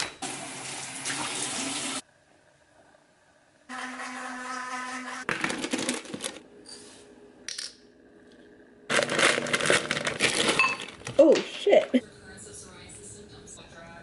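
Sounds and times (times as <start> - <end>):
plastic bag crinkling: 8.9 - 11.2.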